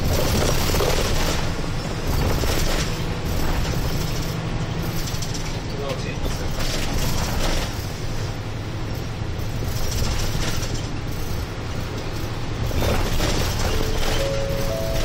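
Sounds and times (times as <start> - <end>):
bus engine hum: 0.0 - 15.0
road and tyre noise: 0.0 - 15.0.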